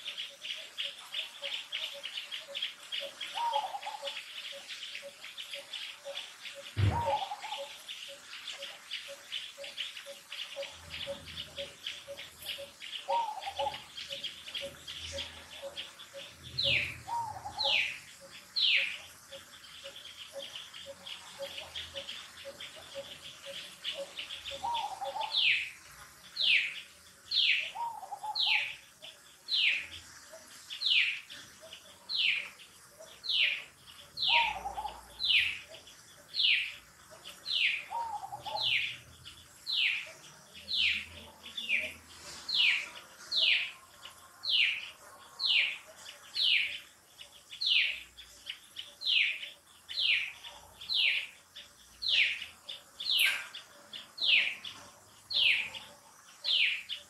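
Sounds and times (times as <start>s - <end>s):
fainter lower bird calls: 0.0s - 57.0s
bird call falling in pitch: 6.8s - 7.5s.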